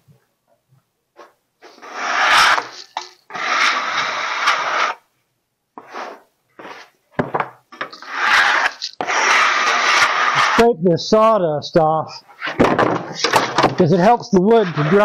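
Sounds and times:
steel scraper on wooden boards: 1.6s - 5.0s, 7.8s - 10.7s, 12.4s - 15.0s.

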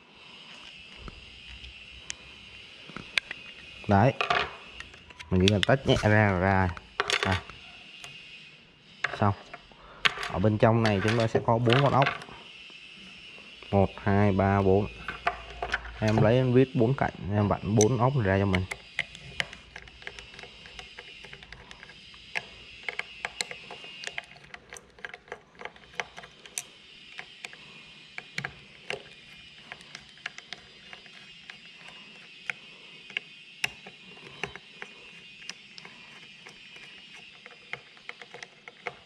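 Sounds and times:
screwdriver clicking in screws: 4.8s - 7.4s, 17.7s - 39.0s.

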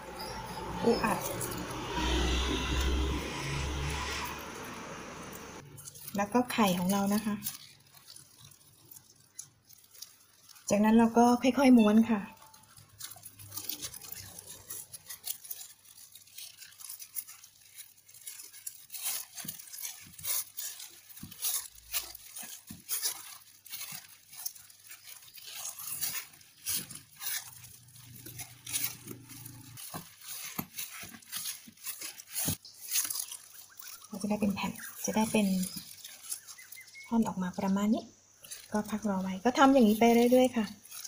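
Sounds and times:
plastic gloves crinkling: 0.0s - 41.0s
bamboo mat clicking and rustling: 12.4s - 37.6s.

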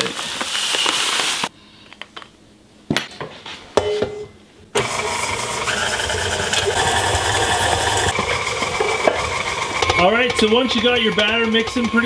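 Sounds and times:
stand mixer running: 4.8s - 12.0s.

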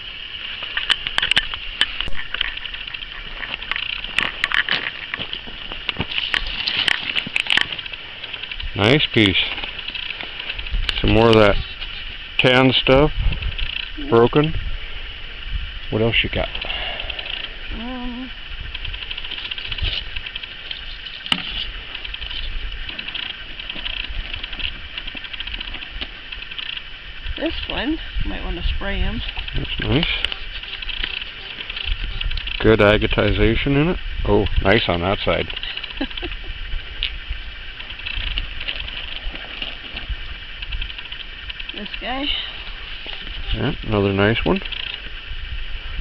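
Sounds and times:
insects trilling: 0.0s - 46.0s
steady hiss: 0.0s - 46.0s
footsteps on gravel: 0.4s - 11.5s.

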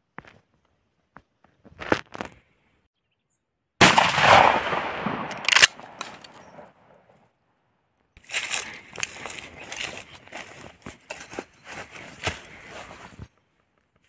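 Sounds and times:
shotgun shot with echo: 3.8s - 6.7s
shotgun pump clack: 5.2s - 6.4s
footsteps in grass: 8.2s - 14.0s.

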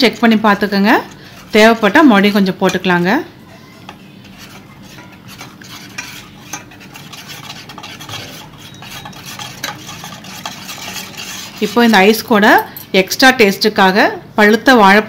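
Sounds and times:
liquid swishing: 0.8s - 3.1s, 4.1s - 12.2s.

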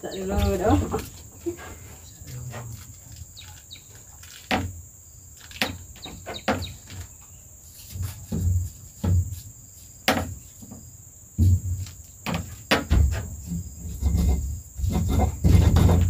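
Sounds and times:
high insect drone: 0.0s - 16.0s
knocks and low thumps: 5.7s - 7.0s, 8.0s - 9.4s, 10.1s - 16.0s.

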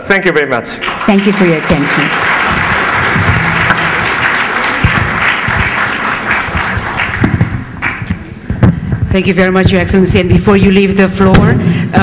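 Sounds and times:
audience applauding: 0.8s - 8.4s.

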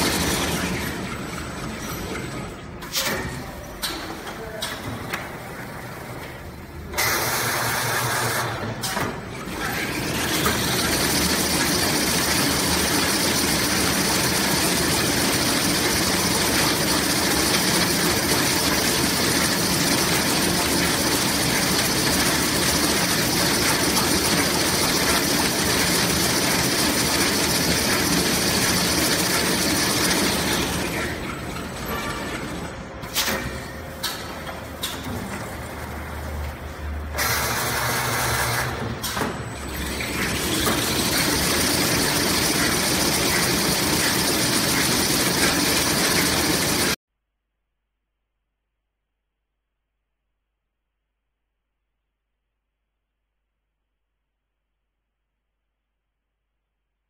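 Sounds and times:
machine running with high whine: 0.0s - 2.7s, 9.5s - 33.0s, 39.5s - 47.0s.

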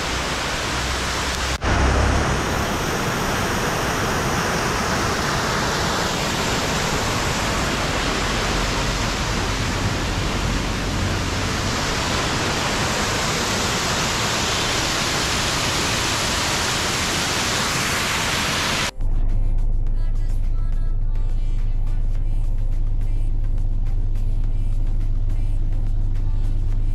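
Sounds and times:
waterfall rushing: 0.0s - 18.9s.

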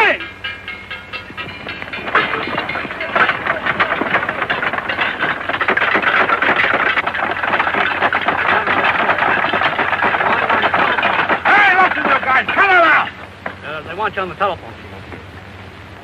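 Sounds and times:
sharp knocks: 1.2s - 13.6s
crowd scrambling over benches: 1.6s - 15.4s.

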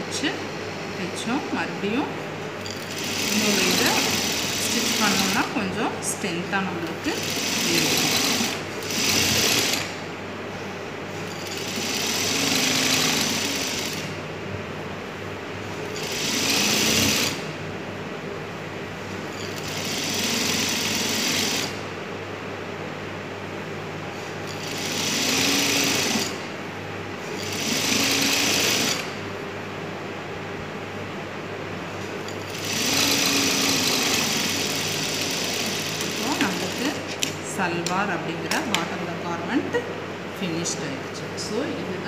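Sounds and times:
motor hum: 0.0s - 42.0s
sewing machine running: 2.6s - 5.6s, 6.8s - 10.0s, 11.2s - 14.2s, 16.0s - 17.5s, 19.4s - 21.8s, 24.4s - 26.5s, 27.4s - 29.2s, 32.3s - 37.3s.

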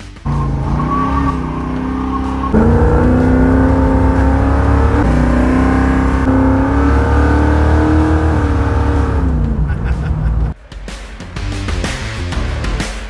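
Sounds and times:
car engine accelerating: 0.2s - 10.6s.

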